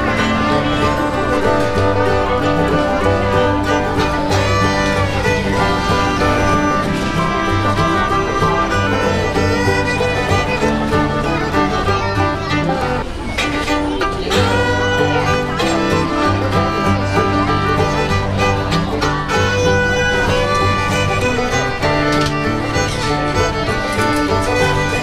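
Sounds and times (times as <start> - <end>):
bass line: 0.0 - 12.7
fiddle-led bluegrass tune: 0.0 - 25.0.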